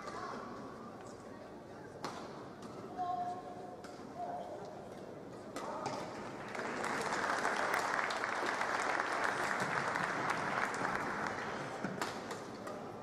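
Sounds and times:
crowd clapping and cheering: 0:06.2 - 0:11.8
racket striking shuttlecock: 0:11.8 - 0:12.8.

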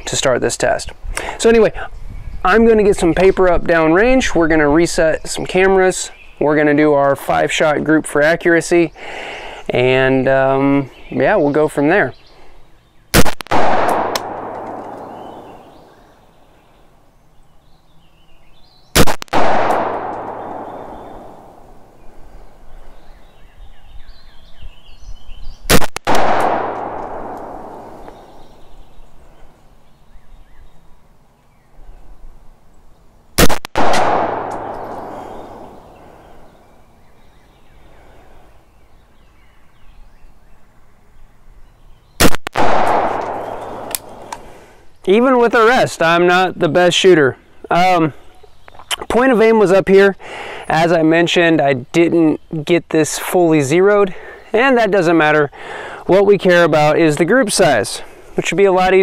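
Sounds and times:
rifle shots with echo: 0:13.2 - 0:15.9, 0:19.0 - 0:21.8, 0:25.7 - 0:28.5, 0:33.4 - 0:36.2, 0:42.2 - 0:44.4.

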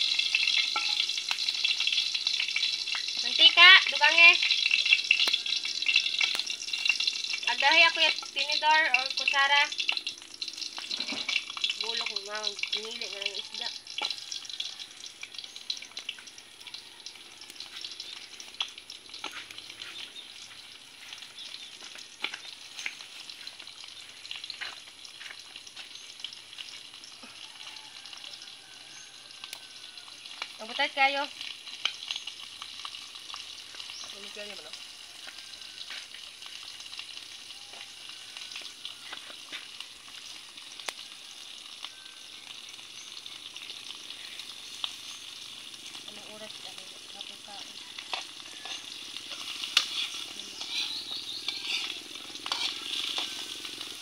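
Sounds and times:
fish sizzling in hot oil: 0:00.0 - 0:54.0
spatula scraping and tapping: 0:00.4 - 0:02.4, 0:48.0 - 0:53.8.

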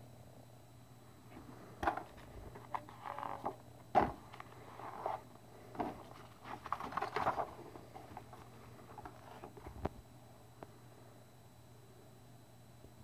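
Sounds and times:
paper rustling and sliding: 0:04.3 - 0:05.2, 0:05.8 - 0:09.8.

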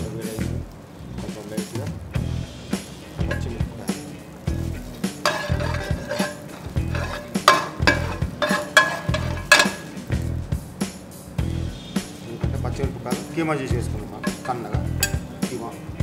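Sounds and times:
light sizzle of oil: 0:00.0 - 0:16.0
background music with steady beat: 0:02.1 - 0:16.0
metal utensils scraping a frying pan: 0:03.2 - 0:10.2, 0:14.1 - 0:15.4.

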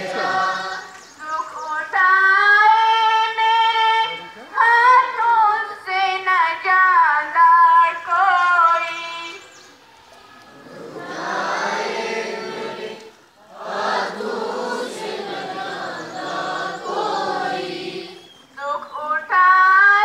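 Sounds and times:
group chanting in unison: 0:00.0 - 0:01.1, 0:10.4 - 0:18.3.

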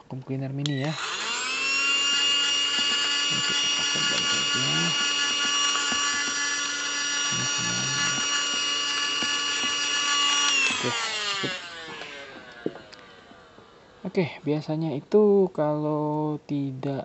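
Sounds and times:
handheld vacuum cleaner whine: 0:00.6 - 0:14.1.

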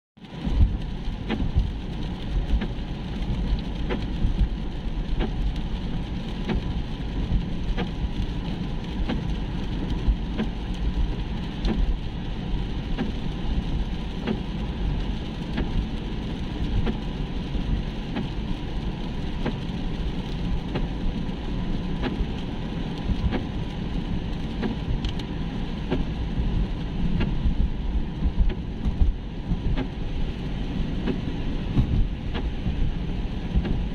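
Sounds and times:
rain on car: 0:00.2 - 0:33.9
tyres and engine rumble on wet road: 0:00.2 - 0:33.9.

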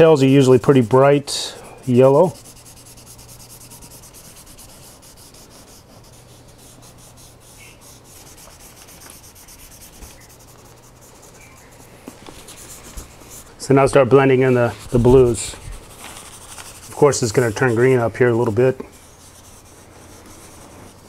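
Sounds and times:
chalk pastel scratching on paper: 0:00.0 - 0:21.0.

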